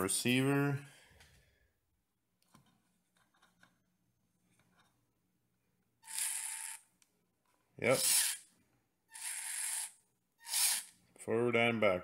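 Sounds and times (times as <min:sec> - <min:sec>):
small electric motor whirring: 0:06.0 - 0:06.9, 0:08.0 - 0:08.5, 0:09.1 - 0:11.0.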